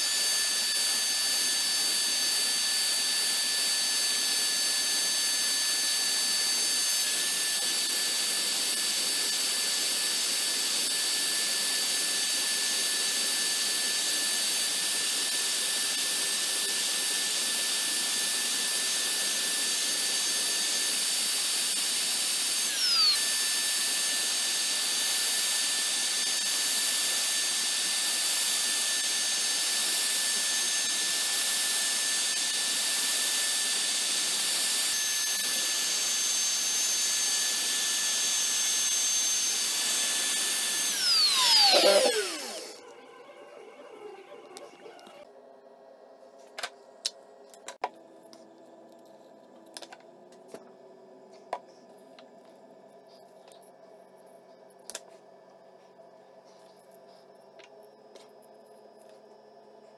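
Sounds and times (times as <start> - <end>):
router spindle high whine: 0.0 - 45.3
end mill cutting wood: 34.8 - 45.2.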